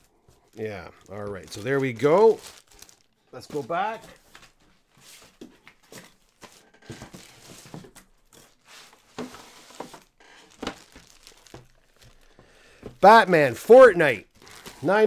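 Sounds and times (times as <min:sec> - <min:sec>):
packaging rustling and crinkling: 0:00.0 - 0:13.0, 0:13.8 - 0:15.0.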